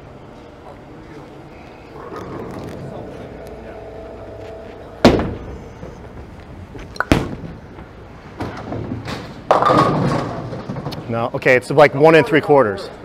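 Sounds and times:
bowling ball thud on lane: 5.0 - 5.6.

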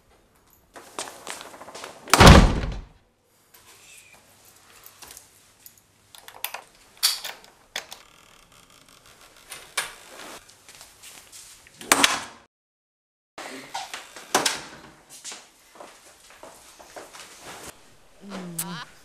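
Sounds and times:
door clicks and knocks: 2.1 - 2.9.

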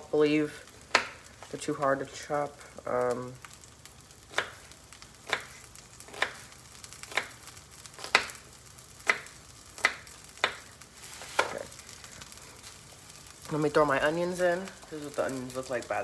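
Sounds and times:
vegetables sizzling in a pan: 0.0 - 16.0
knife chopping onion: 0.9 - 1.2, 4.3 - 8.4, 9.0 - 10.7.

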